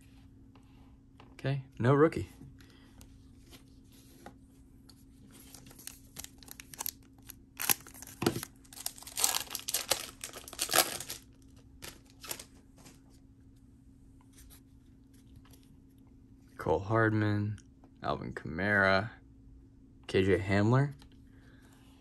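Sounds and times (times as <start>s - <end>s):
foil wrapper tearing and rustling: 5.5s - 12.5s.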